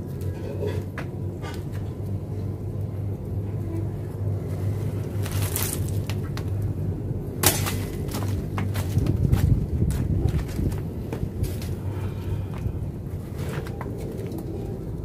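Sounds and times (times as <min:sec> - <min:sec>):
steady low hum: 0:00.0 - 0:15.0
dry leaves crackling: 0:04.4 - 0:06.7, 0:07.4 - 0:09.7
clay crust crumbling: 0:05.0 - 0:06.7.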